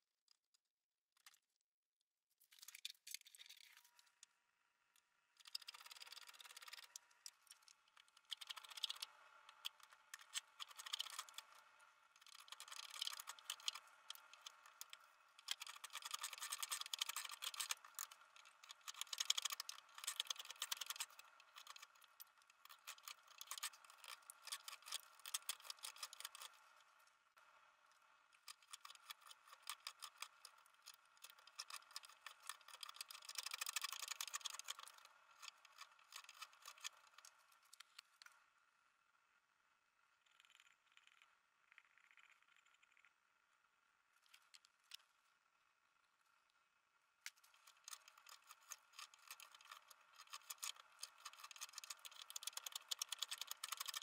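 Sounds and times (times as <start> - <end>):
knife carving wood: 5.4 - 26.9, 28.3 - 37.8, 47.3 - 54.0.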